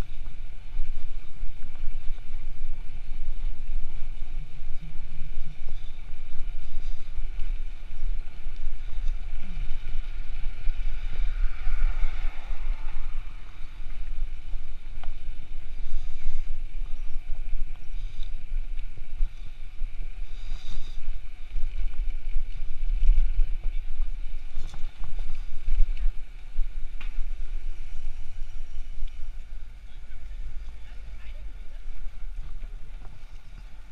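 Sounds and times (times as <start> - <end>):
tyre and road noise: 0.0 - 33.9
wind buffeting microphone: 0.0 - 33.9.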